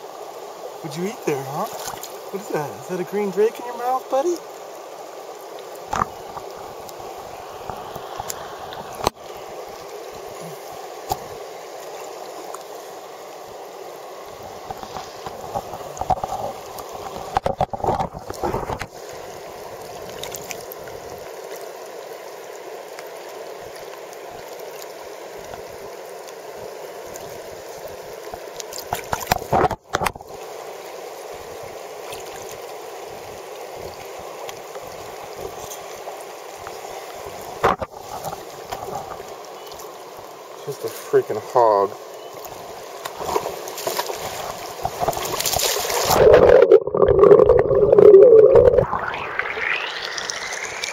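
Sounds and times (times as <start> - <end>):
creek water gurgling over rocks: 0.0 - 50.9
splashing and knocks: 28.8 - 30.2, 43.2 - 46.5.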